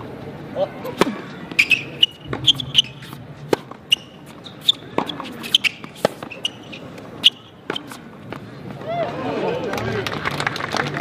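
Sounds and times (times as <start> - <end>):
shoes squeaking on court: 0.8 - 8.4
rackets striking tennis ball: 0.9 - 8.4
ball bouncing on court: 2.1 - 6.4.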